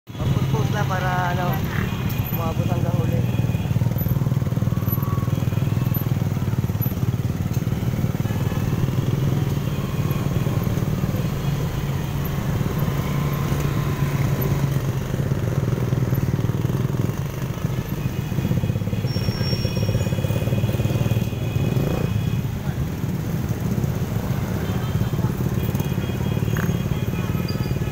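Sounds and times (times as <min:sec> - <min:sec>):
motorcycle engines running: 0:00.1 - 0:27.9.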